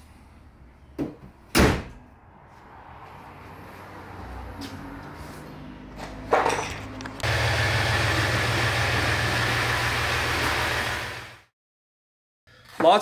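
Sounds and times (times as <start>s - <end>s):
motor humming and hissing: 7.2s - 11.4s.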